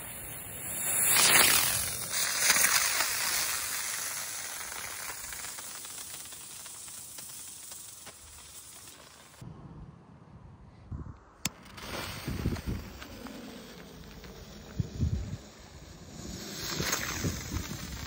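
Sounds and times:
firework rocket motor hissing: 0:00.0 - 0:09.4, 0:11.6 - 0:18.0.

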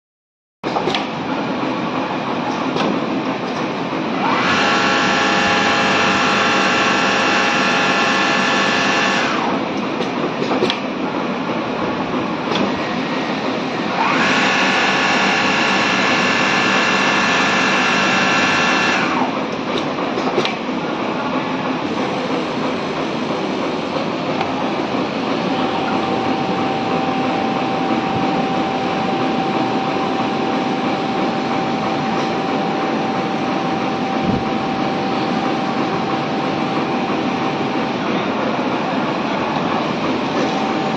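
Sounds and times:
sewing machine drone: 0:04.1 - 0:09.8, 0:12.5 - 0:19.8, 0:21.7 - 0:40.9.

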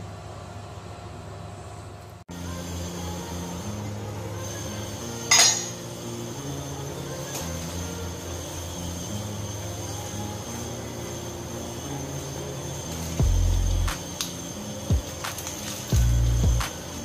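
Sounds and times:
background music: 0:02.3 - 0:17.0
pot lid clinking: 0:05.3 - 0:05.8.

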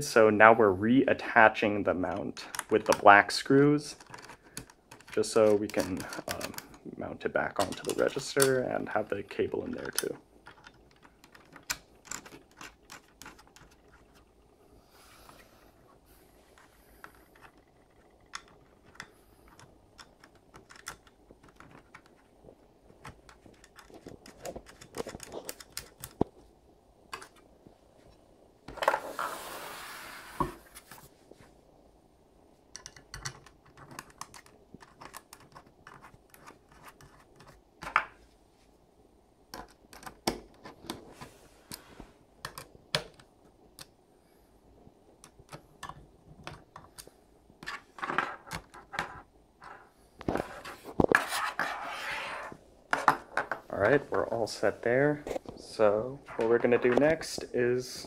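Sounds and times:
small plastic and metal clicks: 0:17.4 - 0:22.2.

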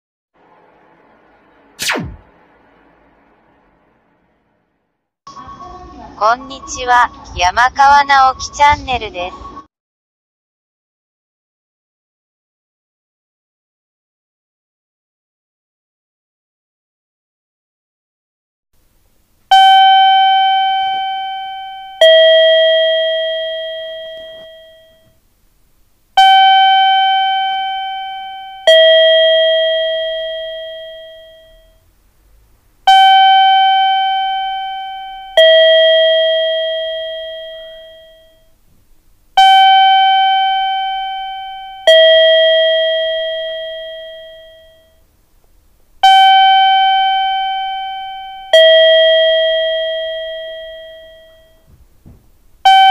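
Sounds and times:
electronic two-note chime: 0:19.5 - 0:25.2, 0:26.2 - 0:31.8, 0:32.9 - 0:38.5, 0:39.4 - 0:45.0, 0:46.0 - 0:51.7.

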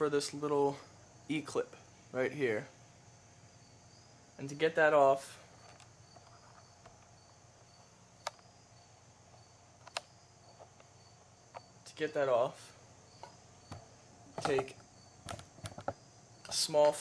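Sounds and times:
faint high pulsing hum: 0:00.0 - 0:17.0
sharp metal clicks: 0:09.8 - 0:10.1.

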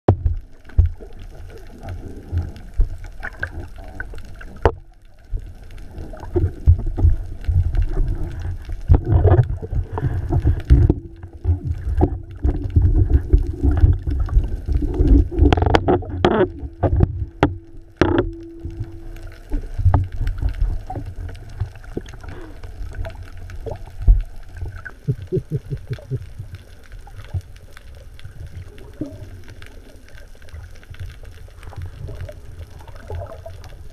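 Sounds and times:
low underwater rumble: 0:00.1 - 0:33.9
water sloshing and gurgling: 0:00.1 - 0:33.9
steady hum: 0:05.8 - 0:24.9.

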